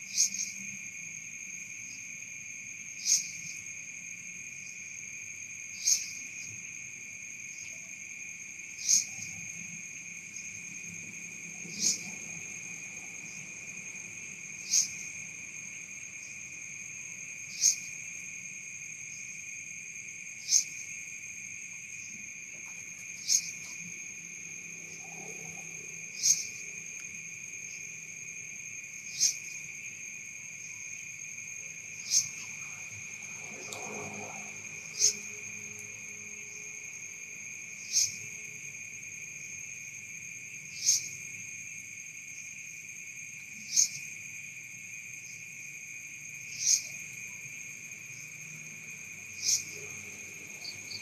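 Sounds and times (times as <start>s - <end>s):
cricket trilling: 0.0s - 51.0s
sharp insect chirp: 0.0s - 51.0s.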